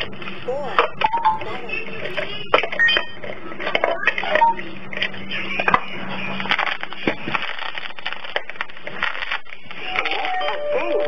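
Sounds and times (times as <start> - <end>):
low steady hum: 0.0 - 11.0
plush toy crackling and rustling: 6.4 - 11.0.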